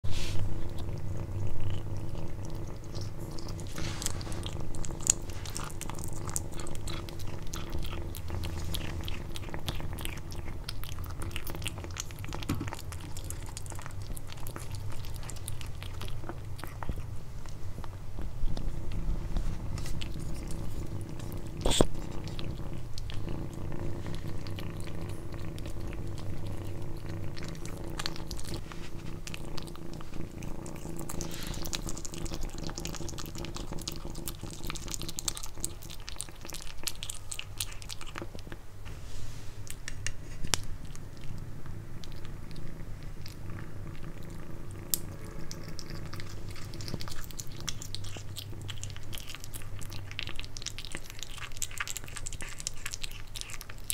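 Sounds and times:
kitten chewing and licking: 0.0s - 53.9s
steady low rumble: 0.3s - 33.8s.

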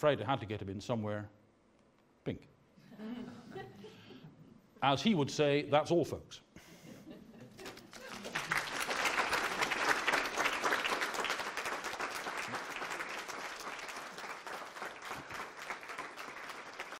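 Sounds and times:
audience applauding: 7.6s - 16.9s.

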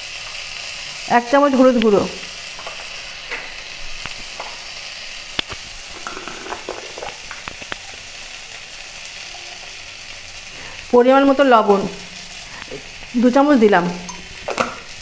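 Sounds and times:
oil sizzling in a pan: 0.0s - 15.0s.

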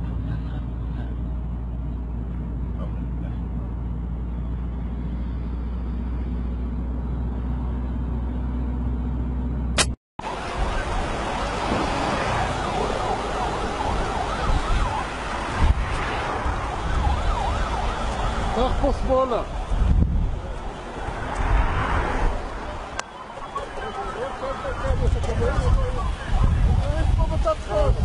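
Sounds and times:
road noise: 0.0s - 28.0s
rushing wind: 9.8s - 28.0s.

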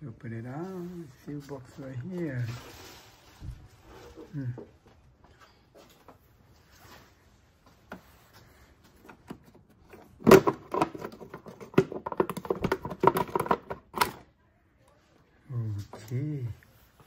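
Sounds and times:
plastic clicks and rattles: 9.1s - 14.2s.

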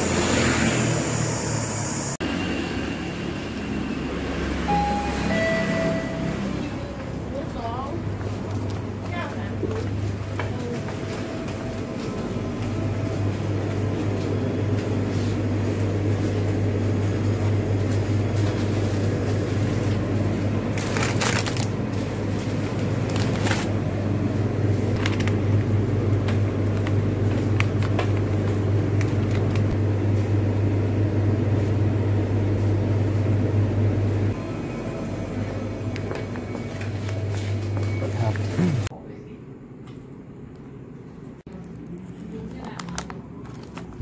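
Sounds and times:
refrigerated display cases humming: 0.0s - 44.0s
plastic packaging crinkling: 20.7s - 23.7s, 41.6s - 44.0s.

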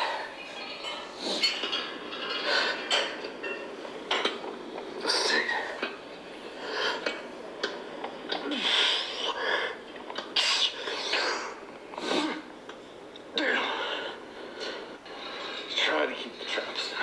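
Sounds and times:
man breathing heavily: 2.3s - 3.0s, 5.0s - 12.5s, 13.4s - 15.7s.

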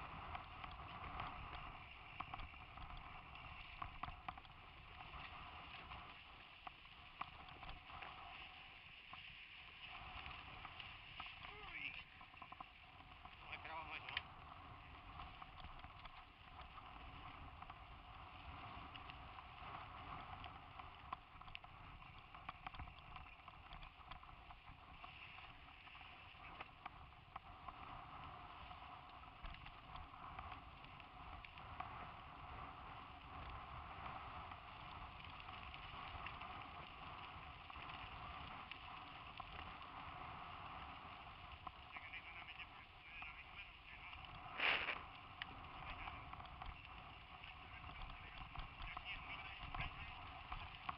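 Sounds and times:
rattles and ticks from bumps: 0.0s - 32.4s, 33.0s - 50.9s
bike ride rushing hiss: 43.3s - 46.2s.

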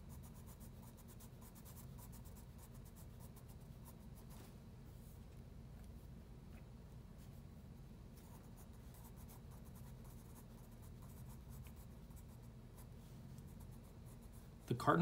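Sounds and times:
pencil scratching on paper: 0.0s - 4.4s, 8.2s - 14.6s.

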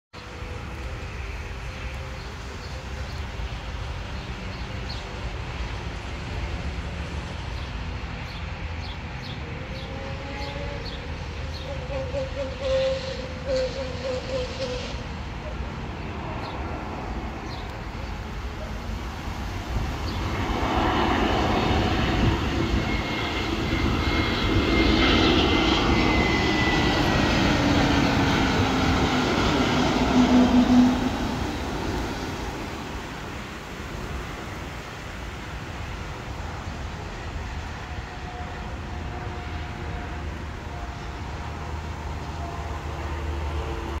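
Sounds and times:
jet engines passing overhead: 0.2s - 44.0s.

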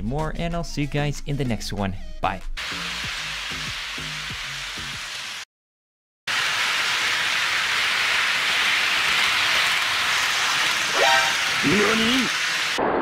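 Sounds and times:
loud steady hissing: 2.6s - 5.4s, 6.3s - 12.8s.

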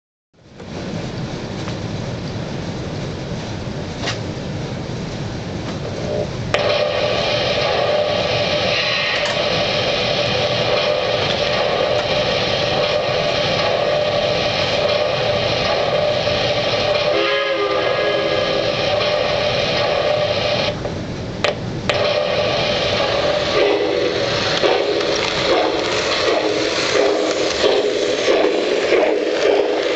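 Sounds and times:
model train running: 0.6s - 29.9s
train whistle: 6.1s - 9.6s, 10.6s - 20.7s, 22.0s - 28.7s.

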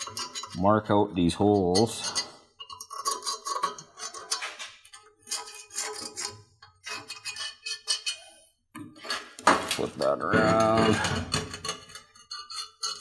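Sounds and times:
pencil scraping on steel pipe: 0.0s - 0.8s, 1.4s - 8.3s, 10.5s - 13.0s
steel parts clinking: 1.3s - 8.3s, 8.9s - 13.0s.

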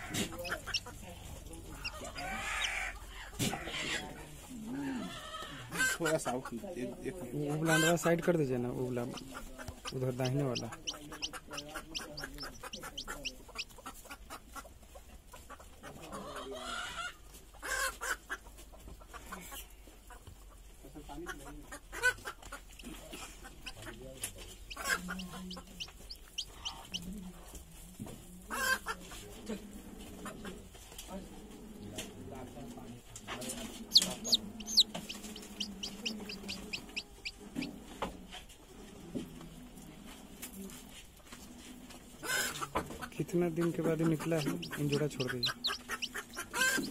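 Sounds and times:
chicks peeping: 0.0s - 6.6s, 7.2s - 30.9s, 31.8s - 39.0s, 41.3s - 46.9s
hen clucking: 0.0s - 30.8s, 31.9s - 39.4s, 41.4s - 46.9s.

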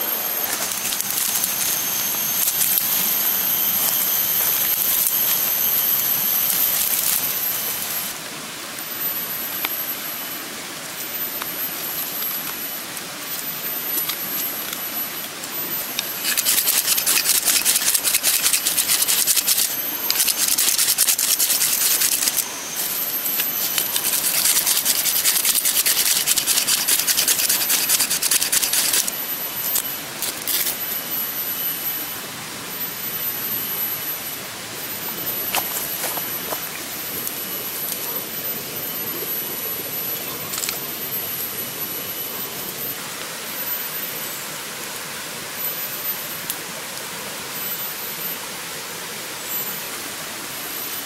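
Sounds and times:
steady hiss: 0.0s - 51.0s
thin high whine: 0.0s - 51.0s
knife scraping fire-starter rod: 0.4s - 5.6s, 6.5s - 7.4s, 15.8s - 30.8s.

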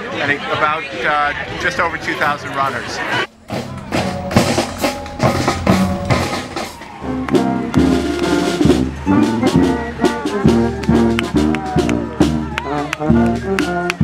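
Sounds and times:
instruments playing held notes: 1.6s - 14.0s
snare and bass drums marching beat: 3.5s - 14.0s.

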